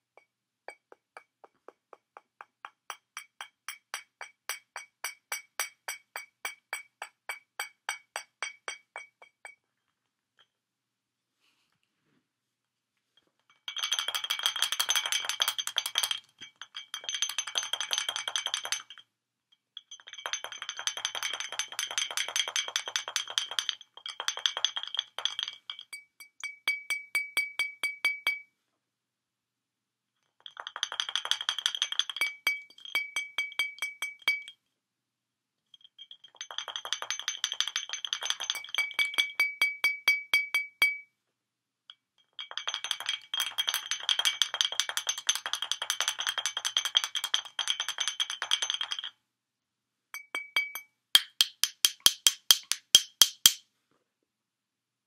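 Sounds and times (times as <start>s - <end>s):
beak tapping glass bottle: 0.0s - 9.6s, 13.6s - 19.0s, 19.8s - 28.5s, 30.4s - 34.6s, 35.8s - 41.1s, 42.4s - 49.1s, 50.2s - 53.6s.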